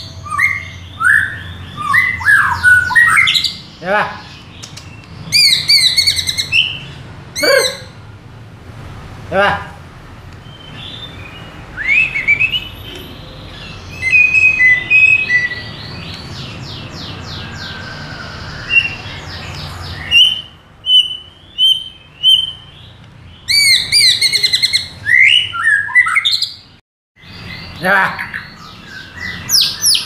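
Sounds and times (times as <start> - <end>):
bird singing whistled phrases: 0.1 - 3.6, 10.5 - 16.1, 20.0 - 22.8, 23.4 - 26.6.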